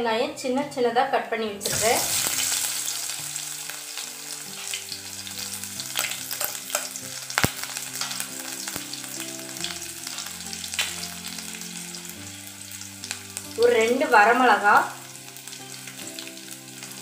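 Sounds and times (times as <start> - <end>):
shallots sizzling in hot oil: 1.6 - 17.0
sharp oil pops: 6.8 - 7.7.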